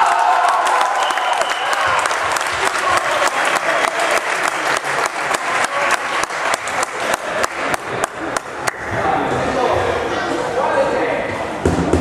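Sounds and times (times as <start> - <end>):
spectators clapping in unison: 0.0 - 8.9
crowd noise: 0.0 - 12.0.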